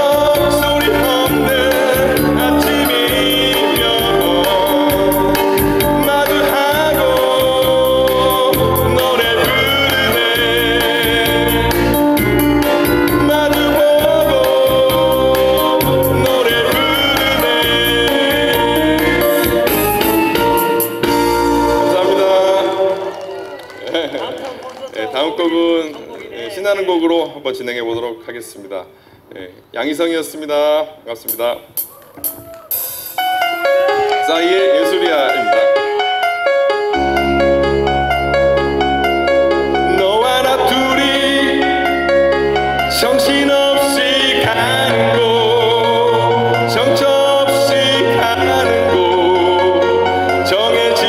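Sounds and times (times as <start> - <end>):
man singing into microphone: 0.0 - 20.1, 21.6 - 23.4, 39.8 - 51.0
keyboard and bass beat backing track: 0.0 - 22.4, 31.3 - 51.0.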